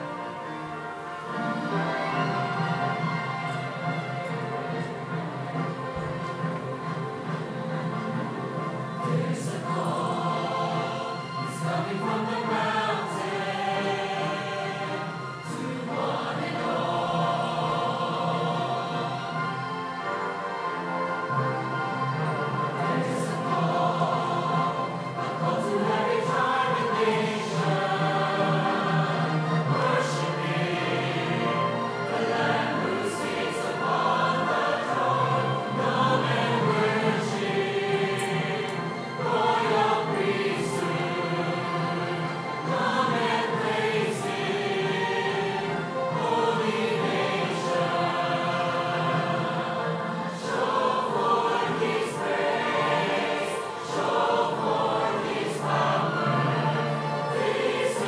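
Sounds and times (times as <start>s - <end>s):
mixed choir singing a hymn: 0.0s - 58.0s.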